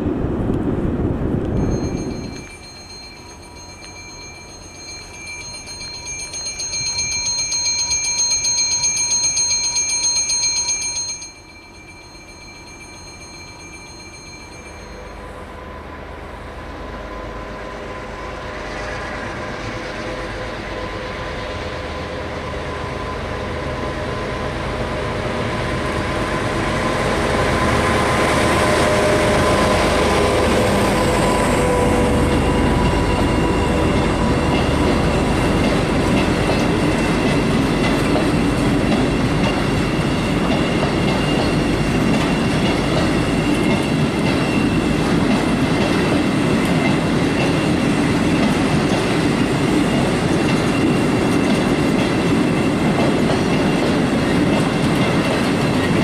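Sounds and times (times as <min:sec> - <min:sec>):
diesel locomotive: 0:00.0 - 0:56.0
bell ringing fast: 0:01.6 - 0:15.4
wagons rumbling and clattering: 0:32.2 - 0:56.0.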